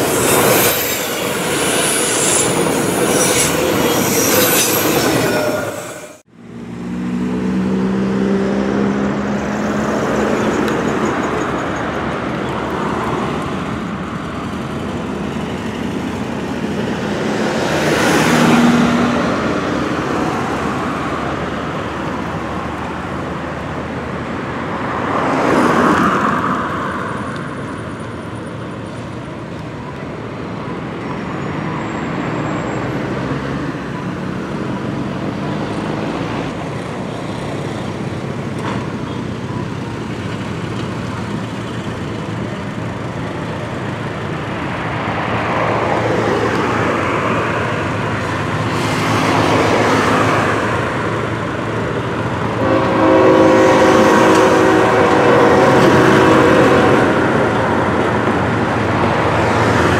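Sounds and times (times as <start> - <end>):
road traffic passing: 0.0 - 59.9
locomotive air horn chord: 52.5 - 57.5.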